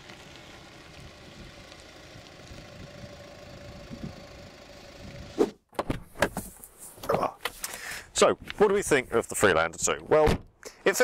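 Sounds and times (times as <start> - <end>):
car engine running: 0.0 - 5.4.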